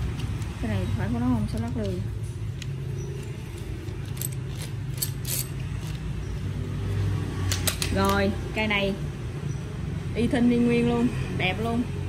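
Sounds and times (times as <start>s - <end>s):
metallic clicks and rattles: 1.5s - 6.3s.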